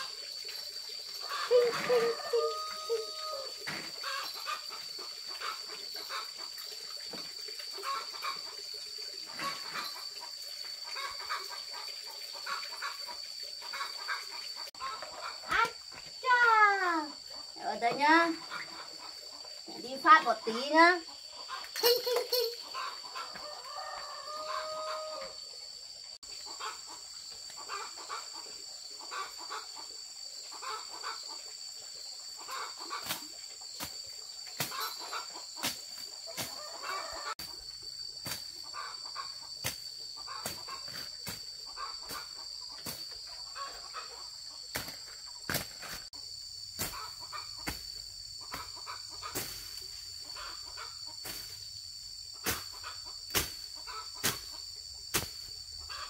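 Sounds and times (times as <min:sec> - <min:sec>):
chickens clucking: 0:01.2 - 0:06.5, 0:09.3 - 0:10.0, 0:14.8 - 0:15.7, 0:20.6 - 0:25.3, 0:29.0 - 0:29.8, 0:32.4 - 0:37.5, 0:38.3 - 0:41.1, 0:41.7 - 0:45.6, 0:46.8 - 0:51.5, 0:52.4 - 0:56.0.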